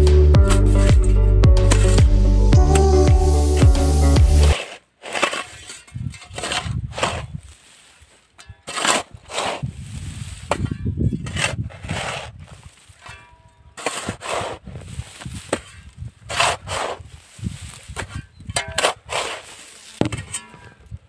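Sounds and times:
shovel scraping through soil: 0:00.4 - 0:02.8, 0:04.4 - 0:21.0
shovel blade metallic clang: 0:00.5 - 0:02.0.

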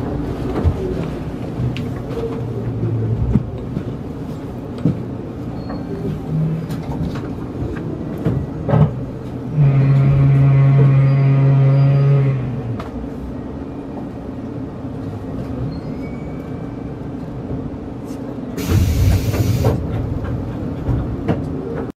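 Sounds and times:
low train rumble: 0:00.0 - 0:21.9
train electric hum: 0:00.0 - 0:21.9
compressed air hiss: 0:18.6 - 0:19.8.

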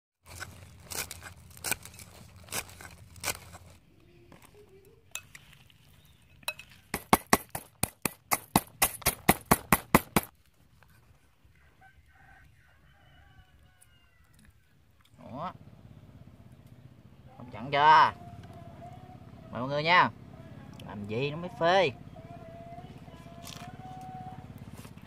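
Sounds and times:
knife chopping on wooden board: 0:06.9 - 0:10.3
pestle pounding in metal bowl: 0:06.9 - 0:10.3.

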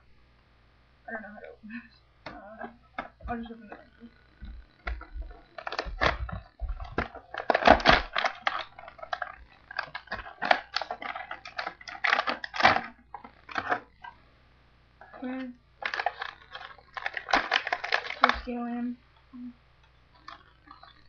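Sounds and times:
plastic packaging ripping and crackling: 0:04.8 - 0:14.1, 0:15.1 - 0:18.6.

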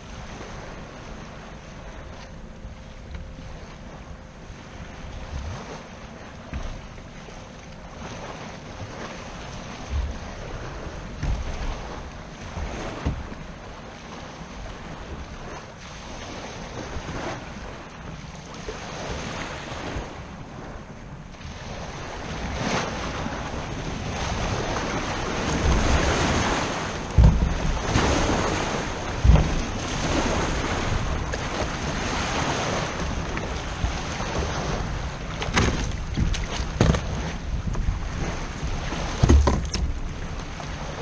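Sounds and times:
waves sloshing against kayak hull: 0:00.0 - 0:41.0
wind on microphone: 0:03.0 - 0:41.0
heavy thumps: 0:27.1 - 0:28.1, 0:29.0 - 0:29.8.

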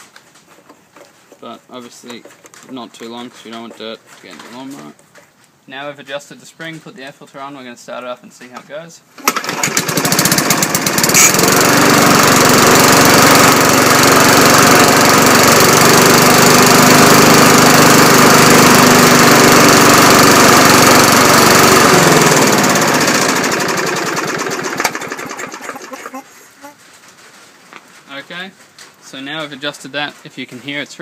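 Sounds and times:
lawn mower engine pull-started: 0:09.2 - 0:26.7
lawn mower engine running: 0:09.2 - 0:26.7.

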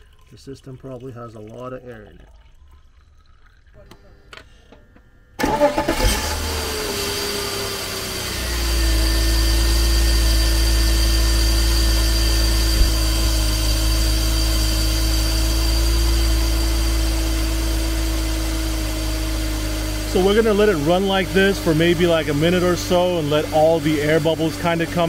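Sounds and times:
car engine starting and idling: 0:05.4 - 0:25.0.

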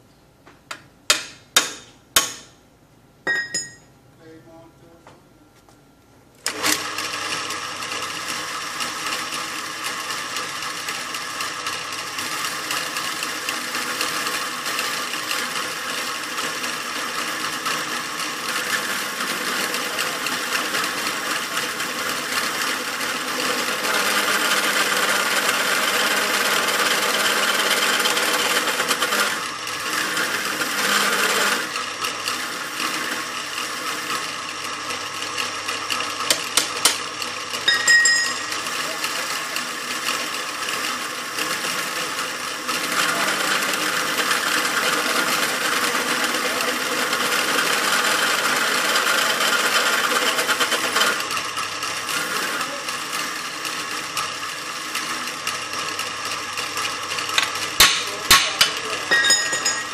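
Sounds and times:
metallic clink: 0:03.3 - 0:03.9, 0:37.7 - 0:38.5, 0:59.1 - 0:59.9
drill press drilling into steel: 0:06.4 - 0:59.9.

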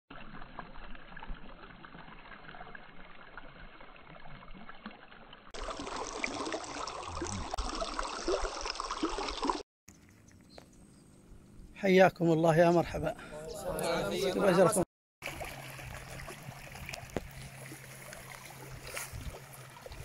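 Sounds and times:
stream trickling over stones: 0:00.1 - 0:10.6, 0:15.2 - 0:20.0.

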